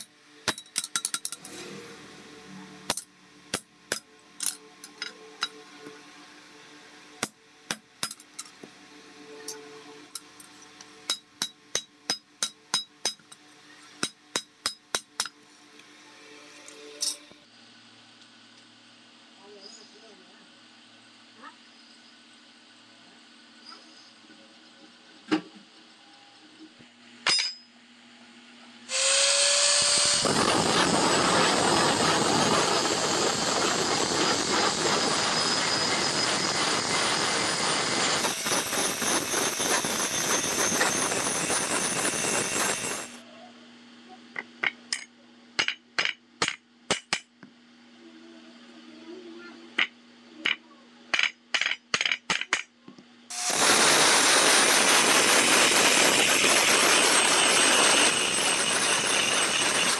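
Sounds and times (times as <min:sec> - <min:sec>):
angle grinder grinding steel: 0:28.9 - 0:43.2, 0:53.3 - 0:59.9.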